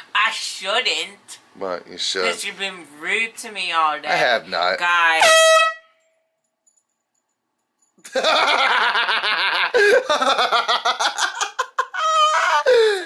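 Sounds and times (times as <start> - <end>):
loud laughter: 8.1 - 12.7.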